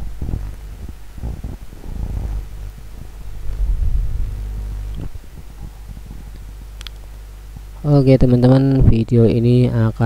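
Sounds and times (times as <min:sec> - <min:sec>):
gas burner rumble: 0:00.0 - 0:09.2
faint crackling: 0:00.3 - 0:07.9.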